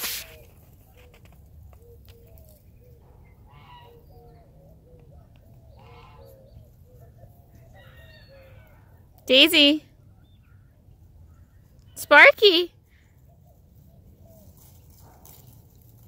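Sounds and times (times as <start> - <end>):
poultry calling: 0.2 - 5.0, 5.7 - 8.9.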